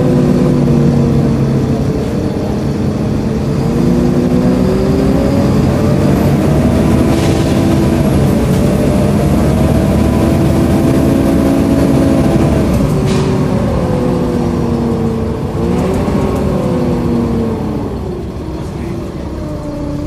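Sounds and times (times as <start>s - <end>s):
bus engine rumbling: 0.0s - 20.0s.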